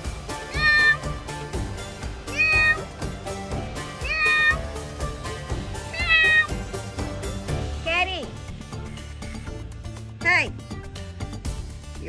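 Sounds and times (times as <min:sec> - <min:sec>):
background music: 0:00.0 - 0:12.0
bobcat meow-like cries: 0:00.4 - 0:01.1, 0:02.3 - 0:02.9, 0:03.9 - 0:04.7, 0:05.8 - 0:06.6.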